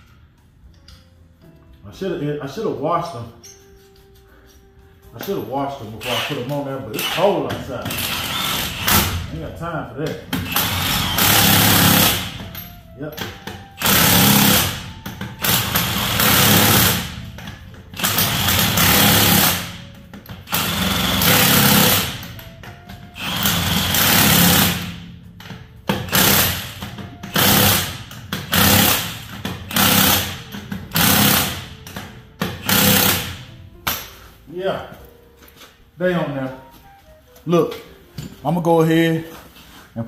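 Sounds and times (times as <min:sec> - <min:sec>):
impact wrench spinning lug nuts: 0:06.0 - 0:09.2, 0:10.3 - 0:12.7, 0:13.8 - 0:22.4, 0:23.2 - 0:33.4.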